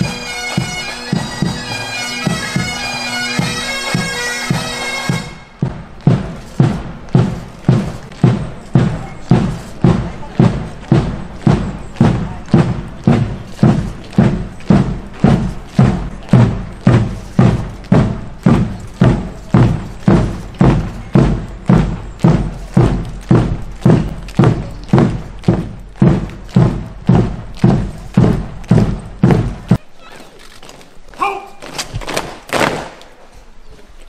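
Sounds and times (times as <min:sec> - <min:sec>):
bass drum beating a march: 0:00.0 - 0:29.8
shouted drill command: 0:31.2 - 0:31.6.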